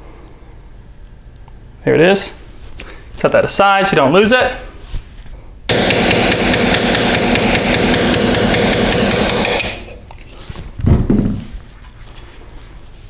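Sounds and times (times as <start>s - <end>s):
hammer tapping metal punch: 5.7s - 10.0s.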